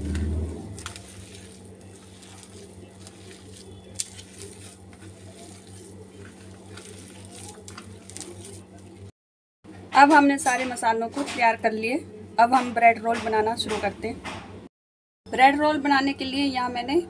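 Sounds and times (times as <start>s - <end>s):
hands squishing food in steel plate: 0.0s - 9.1s
steady low hum: 0.0s - 9.1s.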